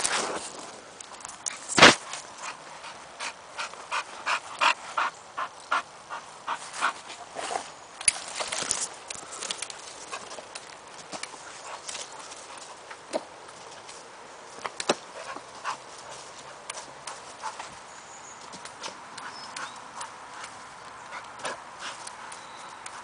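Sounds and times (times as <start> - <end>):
branches shaking: 7.4 - 12.9.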